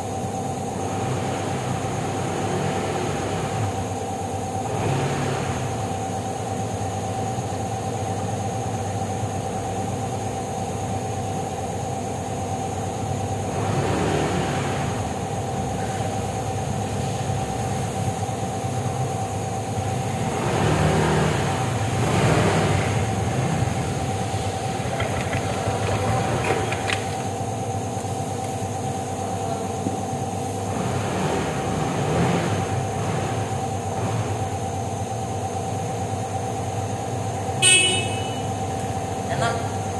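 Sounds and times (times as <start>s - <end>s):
scooter engine running: 13.4s - 36.1s, 37.4s - 39.9s.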